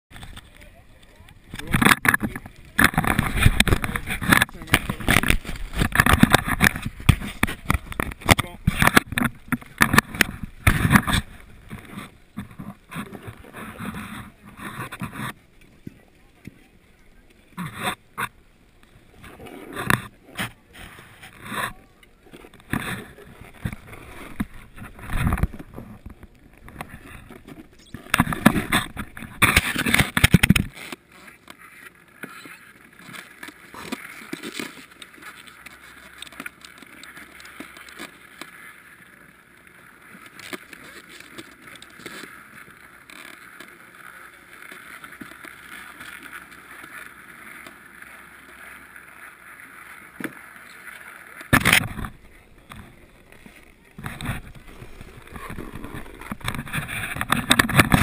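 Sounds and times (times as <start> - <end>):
snowboard scraping over snow: 1.6 - 15.4, 41.6 - 58.0.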